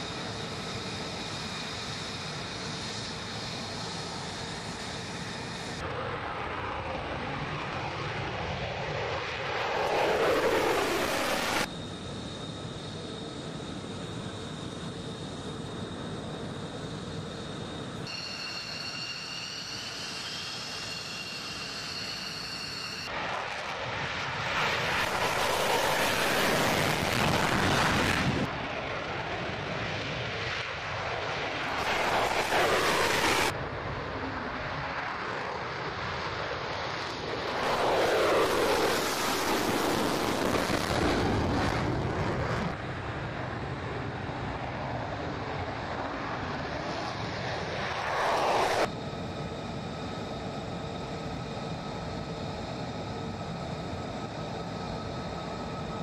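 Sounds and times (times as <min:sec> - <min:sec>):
jet engines roaring: 0:00.0 - 0:56.0
faint steady tones: 0:10.7 - 0:23.2
steady jet hum: 0:31.5 - 0:33.6, 0:37.7 - 0:56.0.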